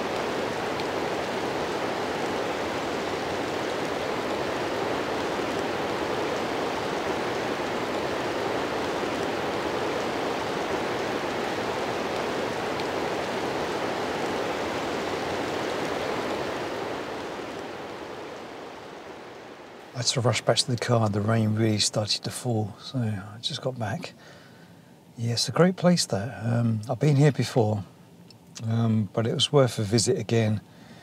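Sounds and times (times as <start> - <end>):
river water gushing: 0.0 - 21.0.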